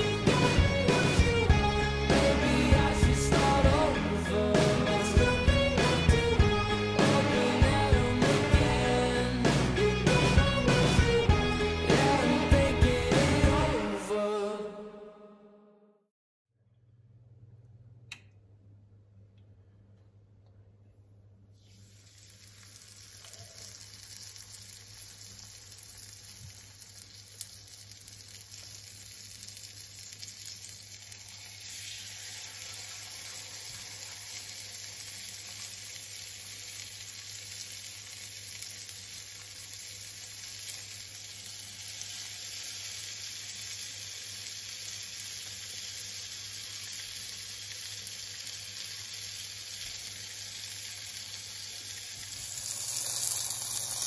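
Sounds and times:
fish frying in hot oil: 21.6 - 54.0.

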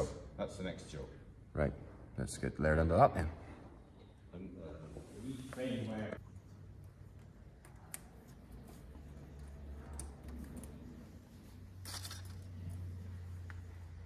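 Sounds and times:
small metal parts clinking: 11.8 - 12.8.

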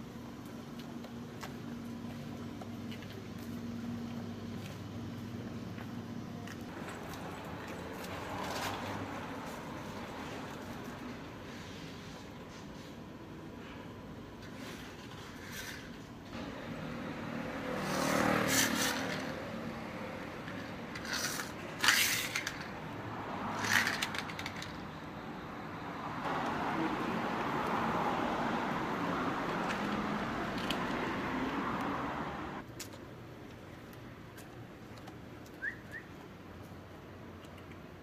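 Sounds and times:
clothing and shoes scraping pavement: 0.7 - 13.1, 14.4 - 24.8.

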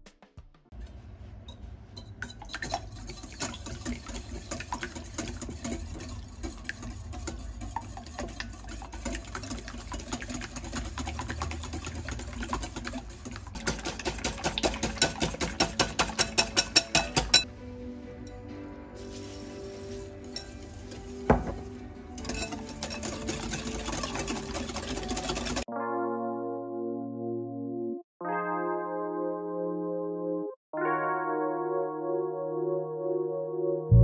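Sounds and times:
whisk clicking against glass bowl: 2.2 - 17.5, 20.3 - 25.7.

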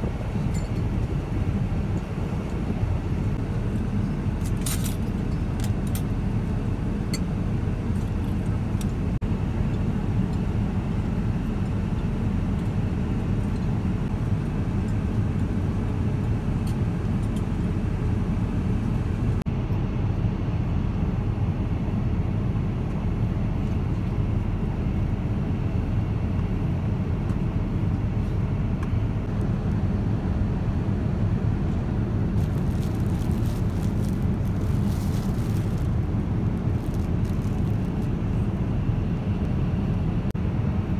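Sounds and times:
airliner cabin drone: 0.0 - 40.9
plastic wrapping crinkling: 32.4 - 38.2.

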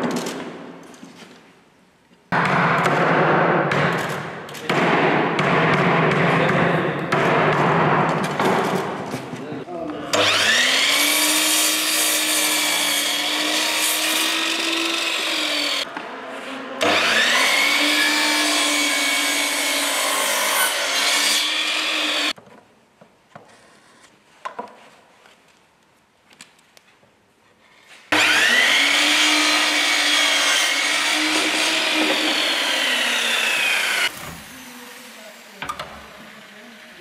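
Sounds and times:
mitre saw cutting wood: 10.1 - 15.9, 16.8 - 22.4, 28.1 - 37.0.

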